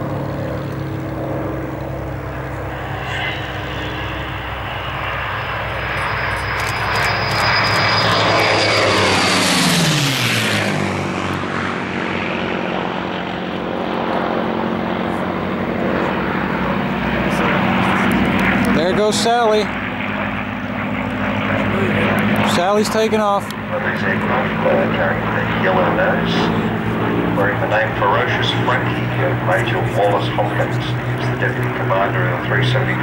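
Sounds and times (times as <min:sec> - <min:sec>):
propeller plane engines passing: 0:00.0 - 0:33.0.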